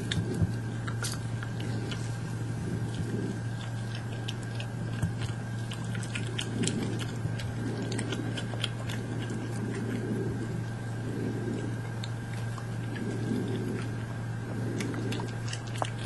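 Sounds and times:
animals crunching and chewing nuts: 0.0s - 16.0s
steady low hum: 0.0s - 16.0s.

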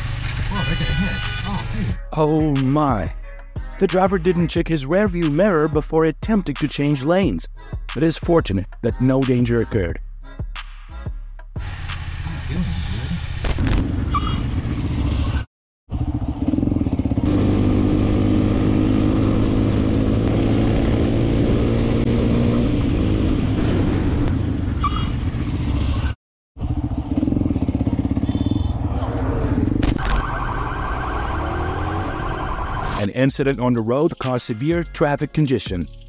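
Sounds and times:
road and wind noise: 0.0s - 2.0s, 11.6s - 33.1s
motorcycle engine running: 13.8s - 30.4s.

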